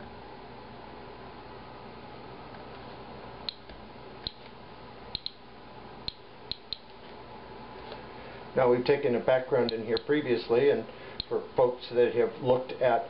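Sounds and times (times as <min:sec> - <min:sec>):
geiger counter clicking: 0:03.5 - 0:04.5, 0:05.1 - 0:05.4, 0:06.0 - 0:07.0.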